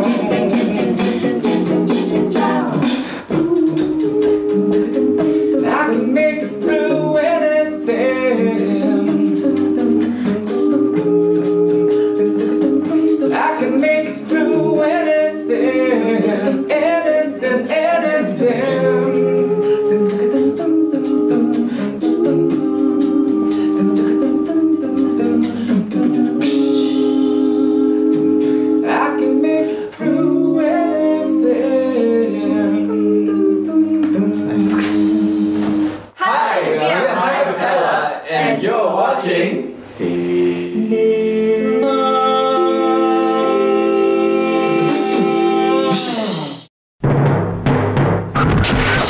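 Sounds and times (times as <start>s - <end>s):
steady ticking beat: 0.0s - 29.5s
vocal group singing in harmony: 0.0s - 46.7s.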